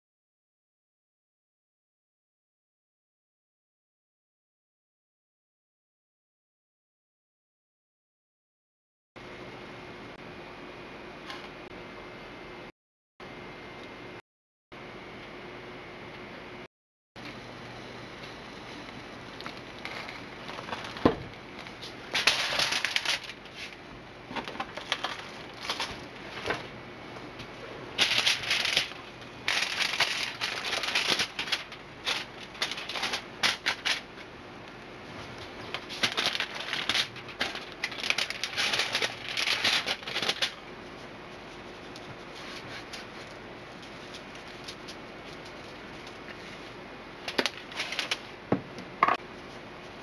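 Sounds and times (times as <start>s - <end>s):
plastic wrap and foil crinkling: 18.2s - 26.7s, 27.9s - 34.3s, 35.1s - 48.4s.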